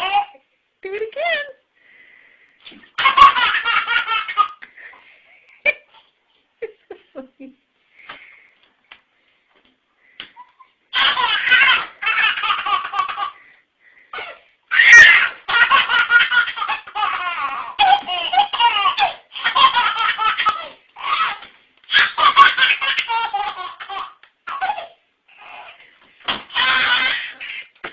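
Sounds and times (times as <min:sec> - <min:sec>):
baby laughing: 0:00.0 - 0:00.4, 0:03.0 - 0:04.7, 0:10.4 - 0:13.4, 0:14.1 - 0:27.9.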